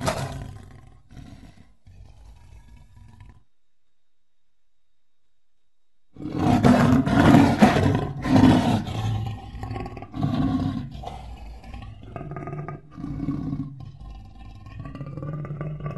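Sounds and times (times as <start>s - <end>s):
lion roaring: 0.0s - 3.5s, 6.2s - 15.9s.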